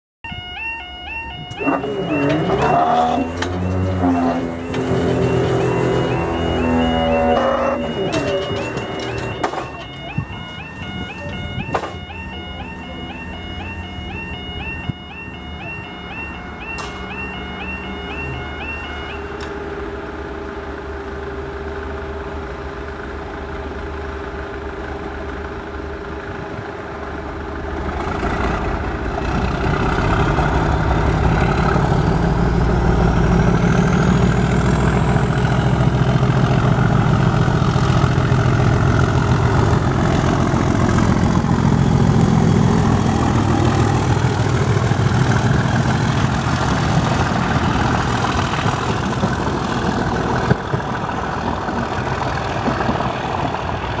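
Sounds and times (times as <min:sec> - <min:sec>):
diesel locomotive engine: 0:00.2 - 0:54.0
train coaches running past: 0:00.3 - 0:20.9
turbocharger whine: 0:00.3 - 0:54.0.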